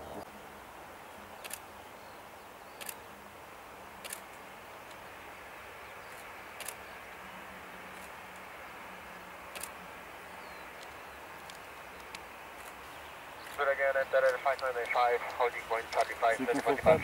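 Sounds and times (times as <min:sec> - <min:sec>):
distant jet engines hissing: 0:00.0 - 0:17.0
sharp single clicks: 0:01.4 - 0:01.6, 0:02.8 - 0:03.0, 0:06.1 - 0:07.2, 0:10.7 - 0:12.8.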